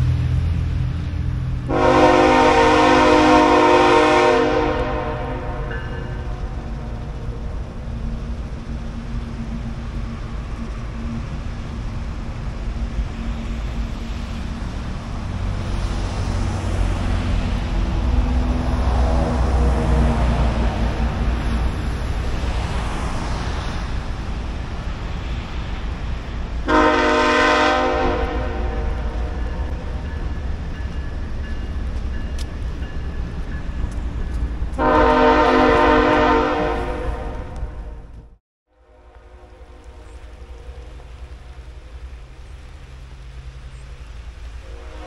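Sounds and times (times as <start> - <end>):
diesel locomotives rumbling: 0.0 - 45.0
locomotive air horn blast: 1.7 - 6.6, 26.6 - 29.3, 34.8 - 38.0, 38.8 - 41.0, 44.6 - 45.0.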